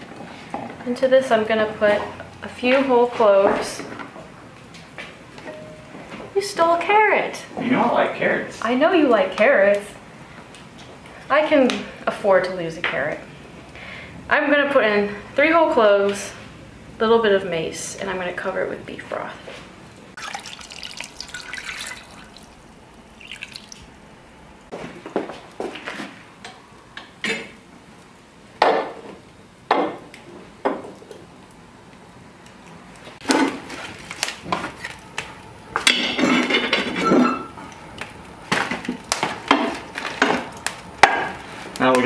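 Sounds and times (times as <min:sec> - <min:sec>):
broth pouring into pot: 0:20.1 - 0:24.0.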